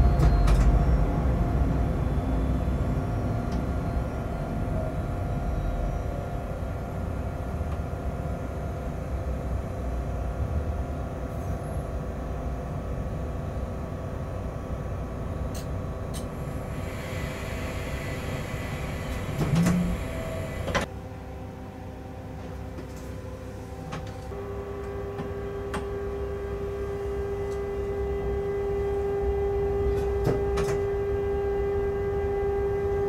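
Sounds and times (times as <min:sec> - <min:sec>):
locomotive cab rumble: 0:00.0 - 0:08.5, 0:14.9 - 0:20.9
hiss: 0:16.7 - 0:20.8.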